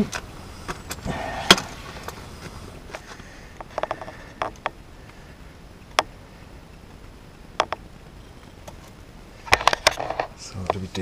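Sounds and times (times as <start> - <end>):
sharp clicks and knocks: 3.6 - 4.8, 5.8 - 6.2, 7.6 - 7.9.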